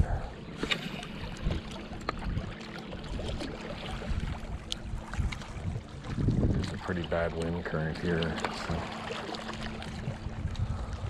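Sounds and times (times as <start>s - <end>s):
waves lapping against rocks: 0.0s - 11.0s
wind buffeting microphone: 0.0s - 11.0s.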